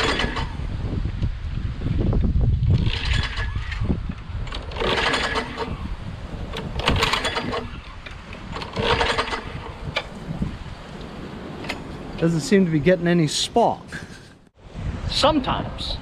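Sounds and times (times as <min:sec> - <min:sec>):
mower engine cranking: 0:00.0 - 0:00.6, 0:02.6 - 0:10.2
recoil starter whirr: 0:00.0 - 0:00.6, 0:02.6 - 0:10.1.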